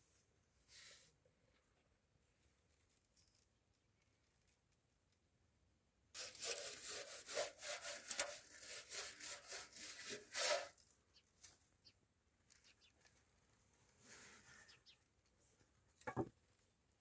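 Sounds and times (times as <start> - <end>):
broom sweeping metal griddle: 6.2 - 10.8.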